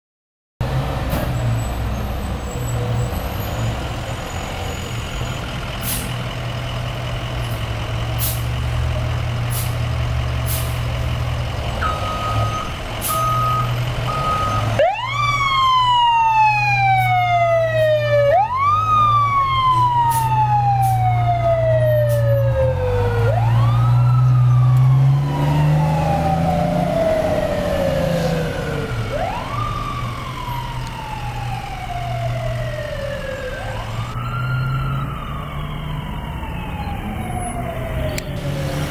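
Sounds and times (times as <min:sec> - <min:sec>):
fire engine revving: 0:00.6 - 0:38.9
fire engine siren wailing: 0:11.6 - 0:38.9.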